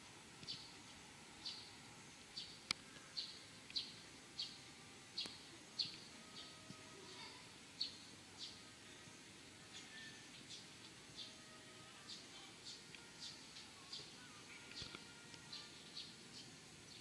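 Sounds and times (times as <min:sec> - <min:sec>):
faint steady background hiss: 0:00.0 - 0:17.0
small bird chirping: 0:01.4 - 0:08.6.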